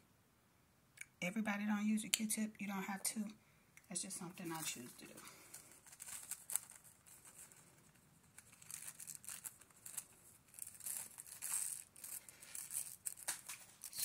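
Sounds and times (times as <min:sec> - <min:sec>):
plastic wrap crinkling: 0:04.3 - 0:14.0.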